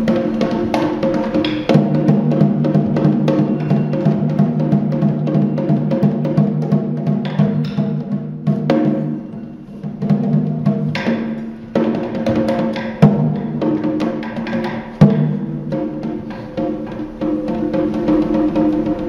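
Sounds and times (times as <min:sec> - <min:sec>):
deep drum strikes: 0:10.0 - 0:19.0.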